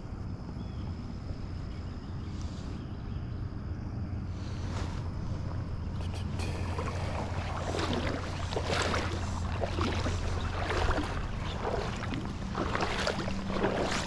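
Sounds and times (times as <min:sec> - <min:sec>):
creek water rushing: 0:04.7 - 0:14.0.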